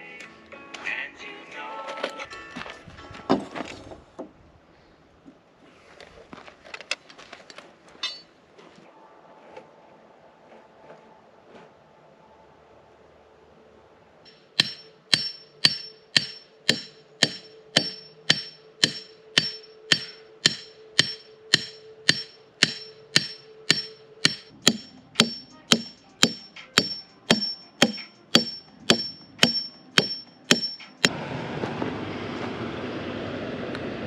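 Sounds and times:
hammer striking stake: 0:14.3 - 0:31.1.

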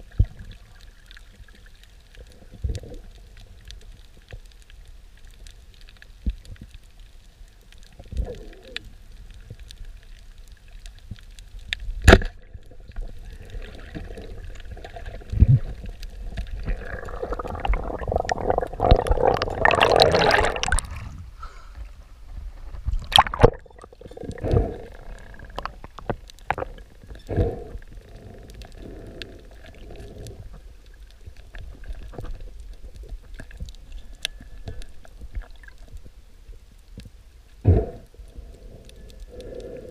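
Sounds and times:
low rush of water underwater: 0:07.6 - 0:36.8
churning rush of water: 0:16.8 - 0:20.9.

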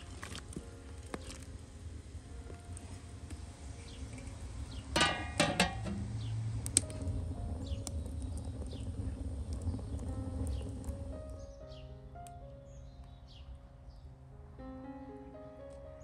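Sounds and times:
low steady rumble: 0:00.0 - 0:11.6
sharp fire crackle: 0:00.0 - 0:13.2
wood fire burning: 0:00.0 - 0:14.1
metallic clinks on pot: 0:05.0 - 0:06.2.

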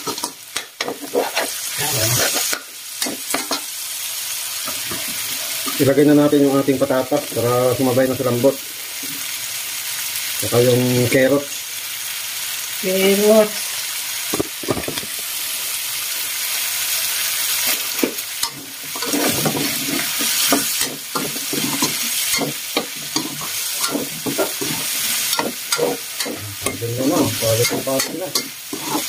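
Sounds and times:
utensil scraping wok: 0:00.0 - 0:03.7, 0:17.4 - 0:29.0
food sizzling in oil: 0:00.0 - 0:29.0.

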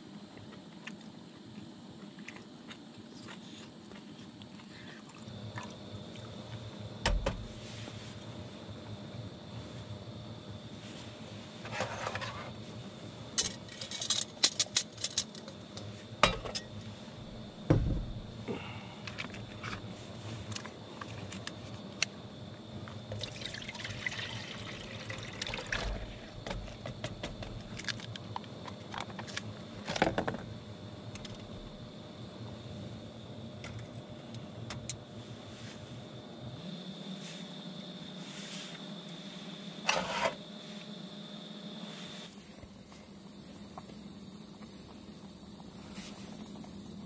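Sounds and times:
dull thump: 0:07.0 - 0:07.5, 0:17.6 - 0:18.4
clicks and clatters of handling: 0:13.4 - 0:16.8, 0:20.5 - 0:22.1, 0:26.4 - 0:30.4
liquid being poured: 0:23.2 - 0:26.1.

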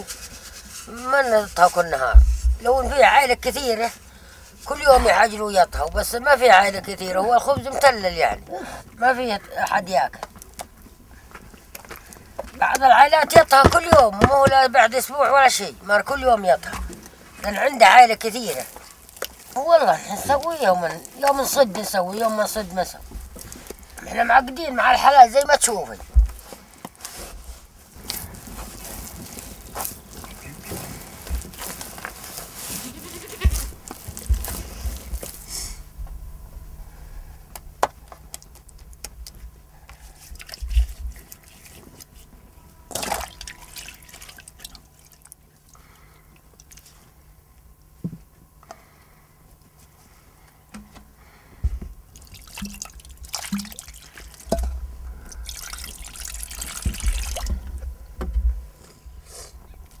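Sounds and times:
dough kneaded in metal basin: 0:00.0 - 0:10.4, 0:12.6 - 0:35.8, 0:51.6 - 0:58.0
water splashing into metal bowl: 0:42.9 - 0:45.4, 0:52.2 - 0:57.6.

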